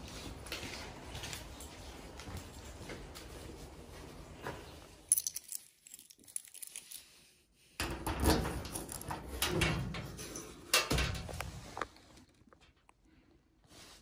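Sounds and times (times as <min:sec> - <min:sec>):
locker door rattling: 0:07.8 - 0:11.4.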